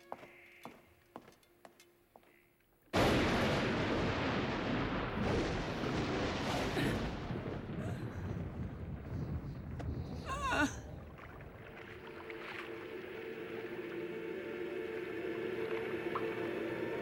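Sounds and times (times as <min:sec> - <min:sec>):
thunderclap and rumble: 0:03.0 - 0:11.7.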